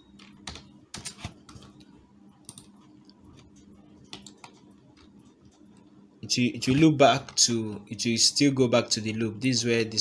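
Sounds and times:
faint low hum: 0:00.0 - 0:10.0
computer keyboard clicks: 0:00.2 - 0:01.8, 0:02.4 - 0:02.8, 0:04.0 - 0:05.6.

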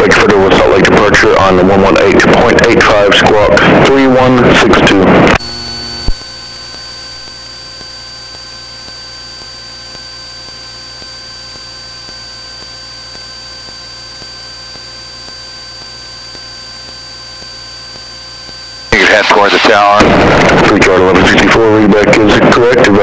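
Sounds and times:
faint thin whine: 0:00.0 - 0:23.0
radio static hiss and hum: 0:00.0 - 0:23.0.

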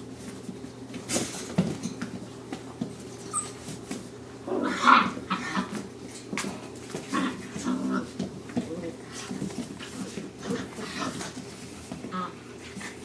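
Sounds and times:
puppies growling and whimpering: 0:03.1 - 0:03.8, 0:04.4 - 0:05.9, 0:07.0 - 0:08.4, 0:09.2 - 0:13.0
puppy crying: 0:03.2 - 0:03.7.

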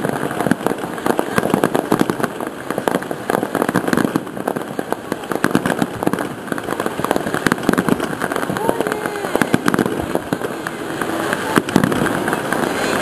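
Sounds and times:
fireworks popping and crackling: 0:00.0 - 0:13.0.

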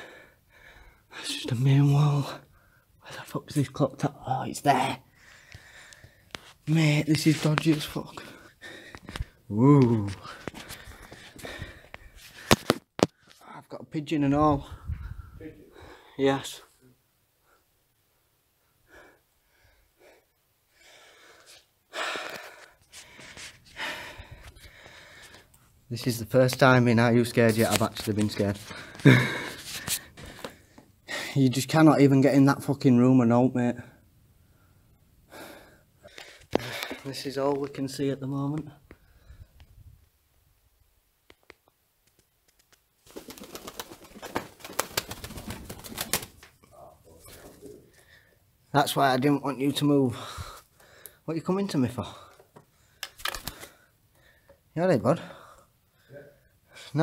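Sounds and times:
person breathing hard: 0:00.0 - 0:01.2, 0:05.1 - 0:06.5, 0:08.1 - 0:09.5, 0:10.2 - 0:13.4, 0:18.6 - 0:25.5, 0:34.4 - 0:37.1, 0:50.1 - 0:51.2, 0:52.1 - 0:54.6
pigeon flapping wings: 0:42.1 - 0:46.6, 0:53.1 - 0:53.7.

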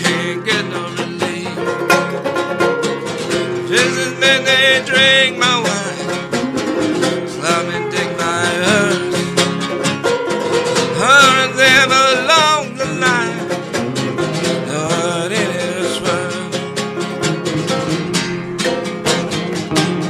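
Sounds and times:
person singing: 0:00.0 - 0:01.9, 0:03.5 - 0:09.6, 0:10.7 - 0:17.0
acoustic guitar: 0:00.0 - 0:20.0
banjo: 0:00.0 - 0:20.0.

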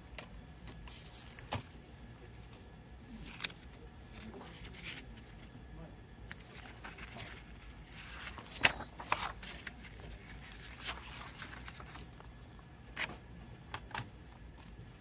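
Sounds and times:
paper rustling: 0:00.6 - 0:01.8, 0:03.1 - 0:05.5, 0:06.3 - 0:13.2.

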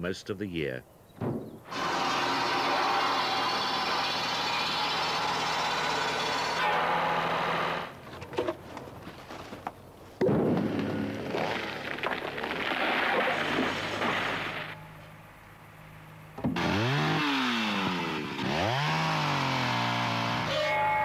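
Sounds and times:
circular saw cutting a log: 0:01.7 - 0:08.0, 0:16.6 - 0:21.0
tree falling through branches: 0:08.9 - 0:14.8
engine hum: 0:13.2 - 0:21.0.

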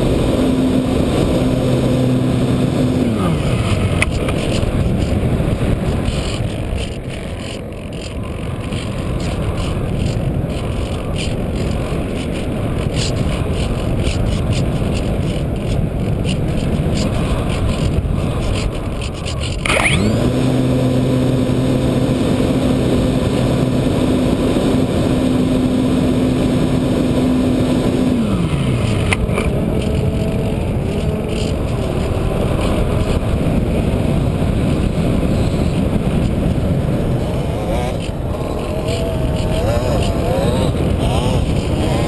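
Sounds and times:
electric motor and propeller hum: 0:00.0 - 0:42.0.

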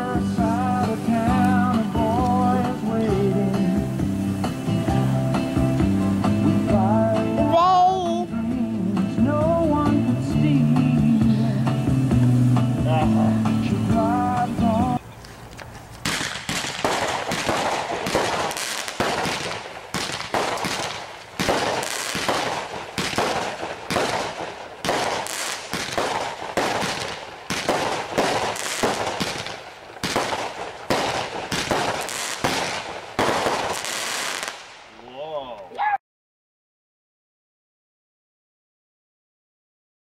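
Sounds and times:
fireworks bangs and crackling: 0:16.0 - 0:34.9.

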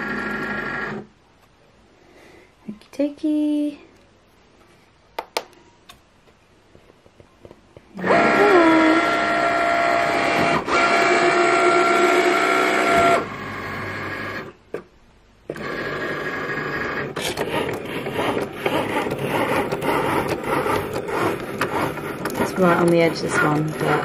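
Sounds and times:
cutting machine motors whining: 0:08.0 - 0:14.6, 0:15.5 - 0:24.0.

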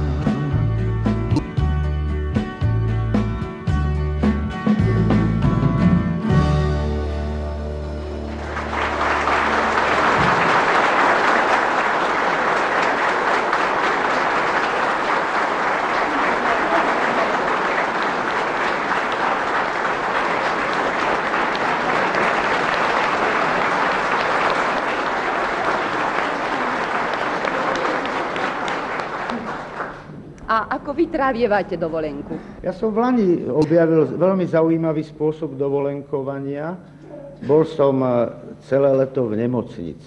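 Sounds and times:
band low chord: 0:00.0 - 0:10.1
audience applauding: 0:08.0 - 0:30.3.

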